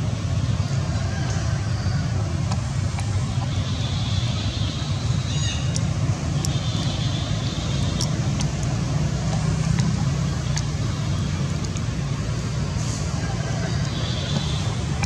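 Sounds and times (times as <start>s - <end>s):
faint clicks: 5.6s - 10.8s, 11.5s - 11.9s.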